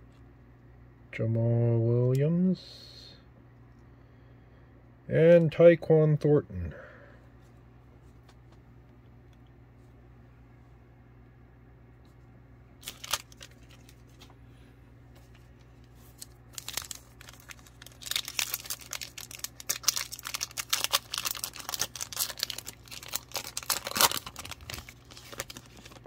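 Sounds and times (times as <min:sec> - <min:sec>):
foil wrapper tearing and crinkling: 0:12.8 - 0:14.3, 0:16.0 - 0:26.0.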